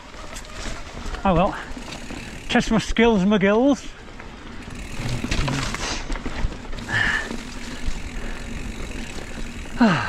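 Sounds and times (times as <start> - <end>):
bike rattling over rough trail: 0.0 - 10.0
electric motor hum: 4.6 - 5.7, 6.8 - 10.0
person grunting: 9.7 - 10.0.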